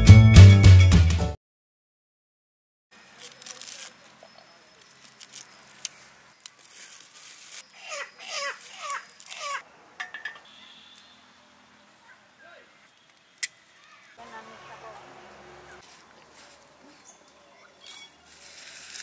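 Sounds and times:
garlic skins crackling and rustling: 3.0s - 9.6s, 15.8s - 19.0s.

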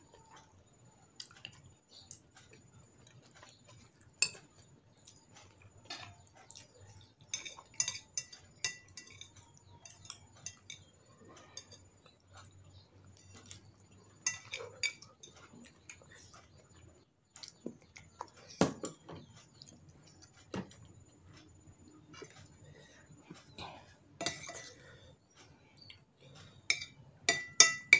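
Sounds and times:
cutlery clinking on dishes: 3.4s - 12.0s, 13.1s - 15.7s, 24.2s - 24.9s, 26.6s - 27.9s.

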